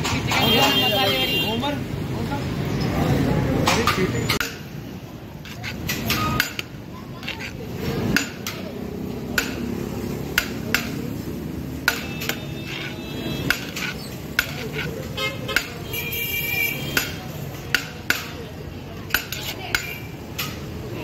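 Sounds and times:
metal scoop scraping steel tray: 0:05.4 - 0:08.2, 0:11.9 - 0:15.1.

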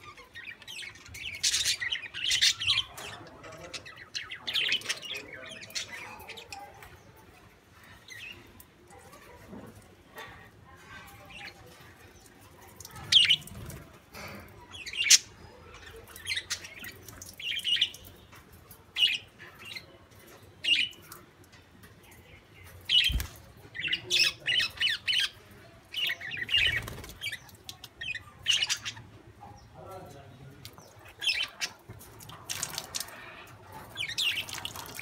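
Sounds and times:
budgerigars chirping and squawking: 0:00.0 - 0:06.9, 0:13.1 - 0:18.4, 0:22.6 - 0:35.0.

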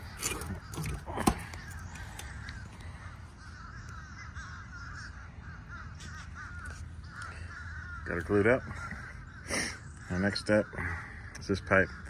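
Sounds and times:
birds calling: 0:00.0 - 0:12.0.

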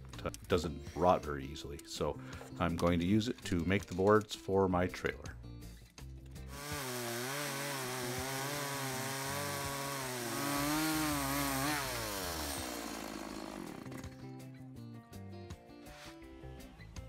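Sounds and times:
chainsaw cutting log: 0:06.5 - 0:14.2.

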